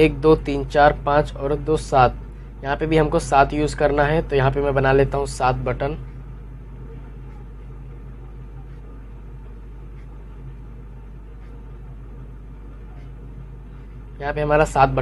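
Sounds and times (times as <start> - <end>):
low background hum: 0.0 - 15.0
marker drawing on paper: 8.4 - 14.1.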